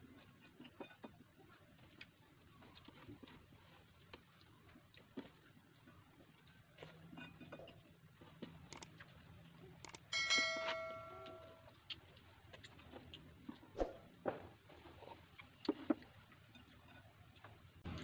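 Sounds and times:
dish ringing when struck: 0:10.2 - 0:11.6.

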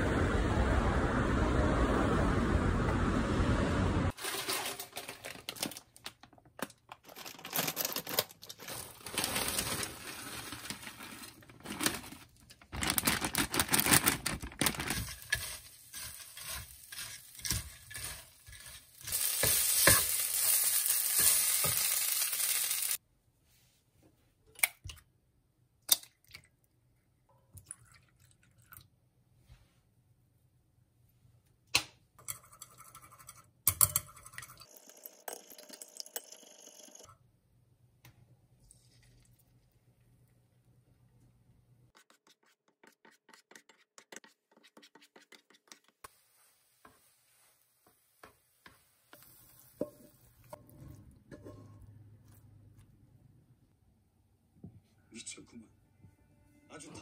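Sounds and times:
spatula scraping pan: 0:14.9 - 0:21.9, 0:47.8 - 0:52.0
rice sizzling in a frying pan: 0:14.9 - 0:23.0, 0:46.1 - 0:50.6.

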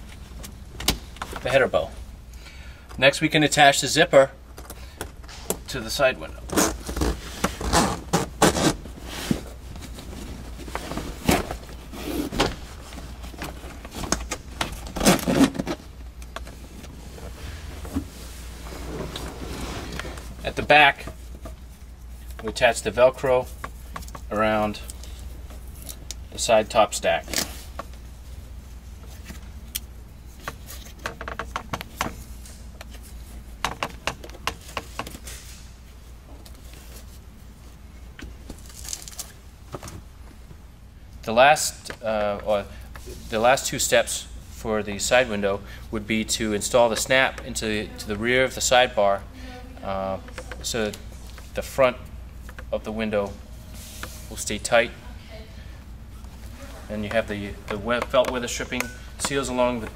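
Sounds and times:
low steady hum: 0:00.0 - 0:59.9
hands handling vinyl and velcro: 0:38.5 - 0:39.4.

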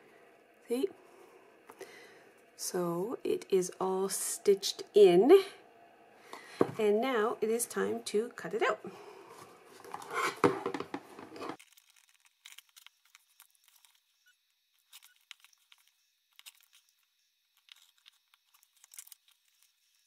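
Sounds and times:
crinkly tearing rustle: 0:11.6 - 0:14.1, 0:14.8 - 0:20.0
ruler ticks and rustles: 0:11.6 - 0:20.0.

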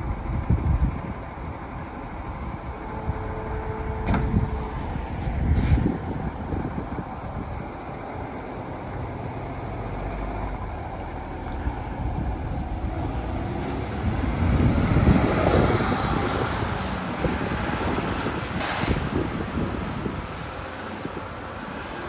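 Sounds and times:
fire engine driving off: 0:00.0 - 0:22.0
short hiss: 0:18.6 - 0:19.1.

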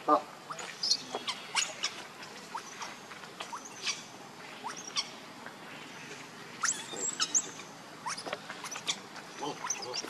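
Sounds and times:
infant monkey squeaking: 0:00.5 - 0:05.1, 0:06.6 - 0:10.0.

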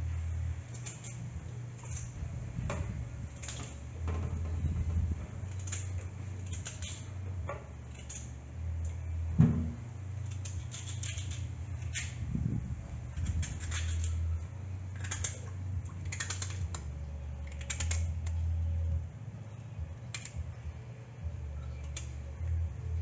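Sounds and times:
steady low hum: 0:00.0 - 0:23.0
knife clicking through potato: 0:05.5 - 0:07.2, 0:10.2 - 0:12.2, 0:13.2 - 0:14.3, 0:14.9 - 0:18.4
thump: 0:09.4 - 0:09.8.

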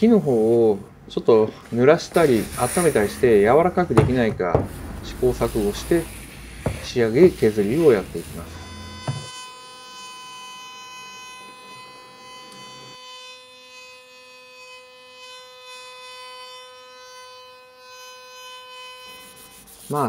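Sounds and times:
router high whine: 0:01.5 - 0:15.6
lower rushing noise: 0:02.0 - 0:08.6.

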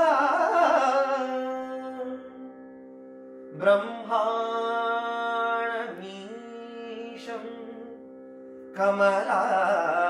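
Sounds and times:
person singing: 0:03.6 - 0:10.0.

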